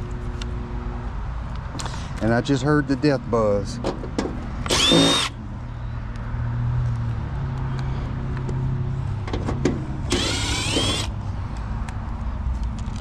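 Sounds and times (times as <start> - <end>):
power drill whirring: 4.7 - 5.4, 10.1 - 11.1.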